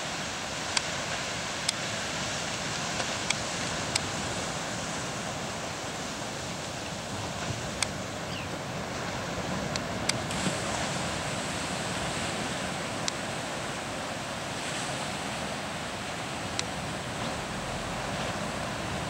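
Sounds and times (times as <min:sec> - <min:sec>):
ocean surf washing: 0:00.0 - 0:19.0
wind: 0:00.0 - 0:19.0.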